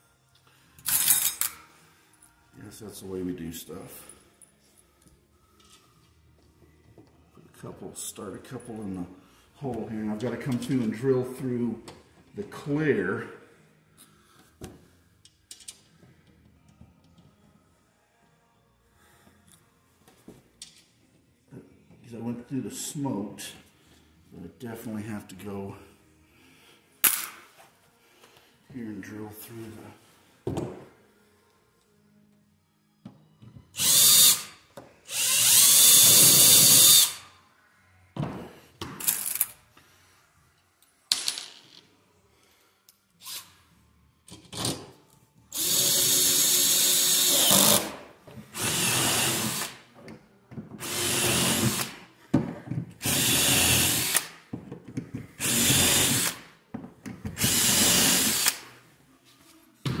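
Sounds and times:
cordless drill drilling: 33.8 - 34.5, 35.1 - 37.2, 45.5 - 47.9, 48.6 - 49.8, 50.8 - 51.9, 53.0 - 54.3, 55.4 - 56.4, 57.4 - 58.6
drill clicks: 50.8 - 51.9, 53.0 - 54.3, 57.4 - 58.6.

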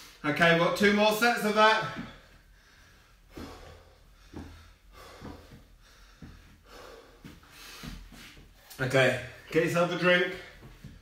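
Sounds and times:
man breathing hard: 1.9 - 8.7.

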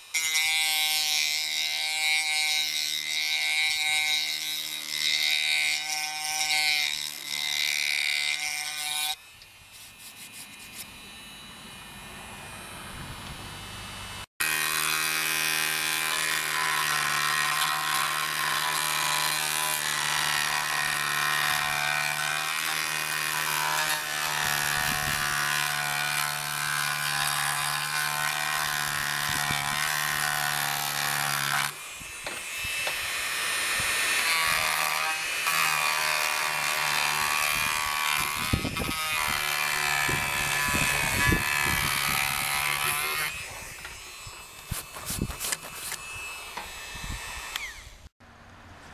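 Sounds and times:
rotary tool whining: 0.0 - 48.2
sanding drum scraping filler: 9.7 - 11.0, 43.0 - 47.2.

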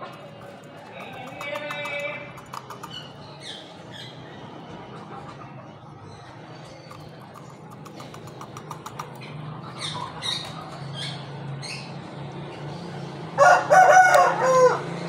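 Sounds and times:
rooster crowing: 13.3 - 15.0.

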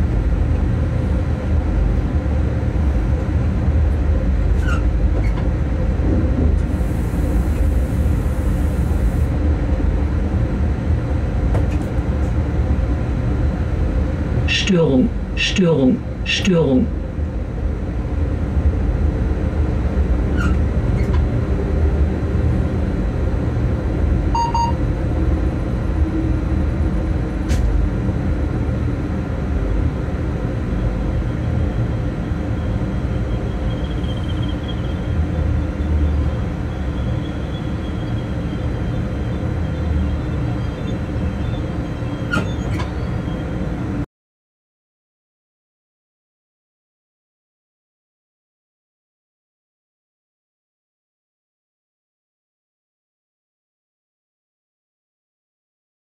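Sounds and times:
locomotive rumble: 0.0 - 44.0
short beep: 24.4 - 24.8.

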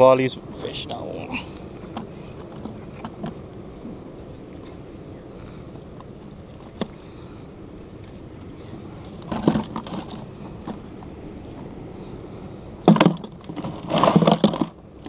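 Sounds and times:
fish and ice clattering: 9.1 - 10.9, 12.8 - 15.0.

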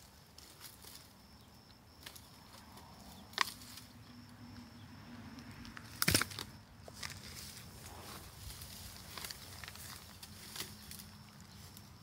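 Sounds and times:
sharp wood snap: 5.6 - 7.2
dry brush rustling: 6.9 - 12.0.

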